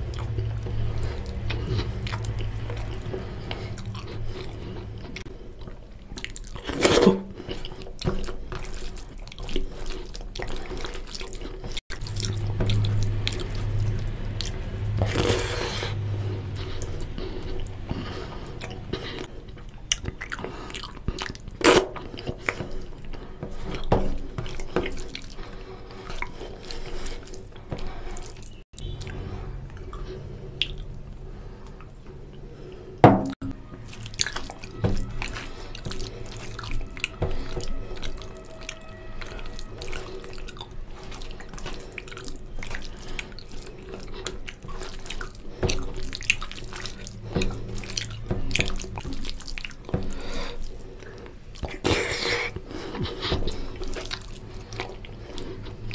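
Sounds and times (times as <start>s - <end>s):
sharp knock: 33.0s - 33.4s.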